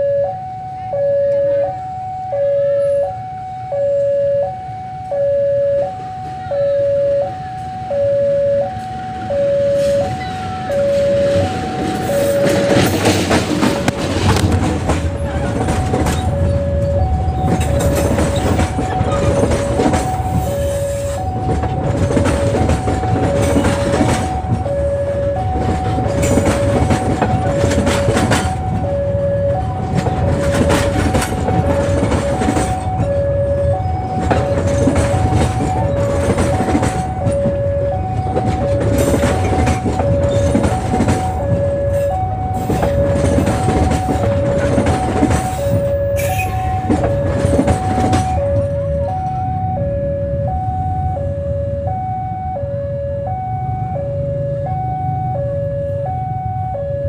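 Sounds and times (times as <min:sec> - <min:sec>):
level-crossing alarm two tones: 0:00.0 - 0:13.7, 0:15.1 - 0:57.0
train passing with heavy rumble: 0:00.0 - 0:57.0
wheels clacking over rail joints: 0:08.8 - 0:49.6.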